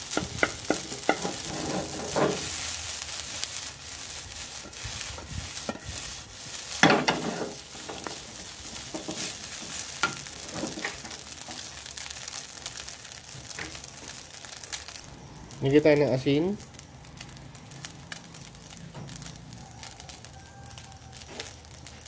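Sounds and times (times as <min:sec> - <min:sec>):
wooden spatula scraping a wok: 0:00.0 - 0:15.0
rice sizzling in a wok: 0:00.0 - 0:22.0.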